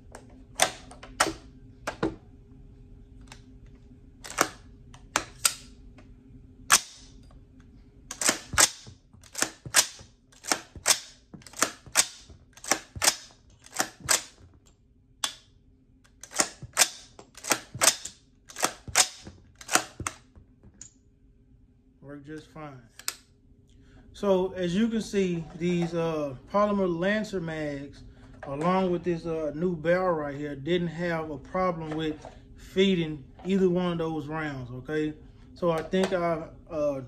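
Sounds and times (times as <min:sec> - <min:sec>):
rifle action cycling metallic clacks: 0:08.1 - 0:14.4, 0:16.1 - 0:20.2.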